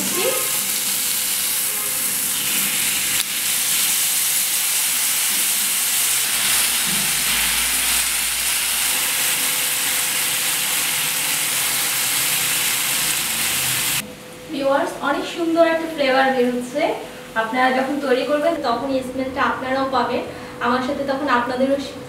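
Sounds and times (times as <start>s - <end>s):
steak sizzling in a grill pan: 0.4s - 14.0s.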